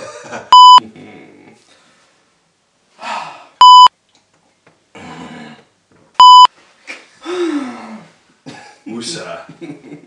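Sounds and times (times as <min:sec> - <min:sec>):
censor bleep: 0:00.6 - 0:00.8, 0:03.6 - 0:03.9, 0:06.2 - 0:06.5.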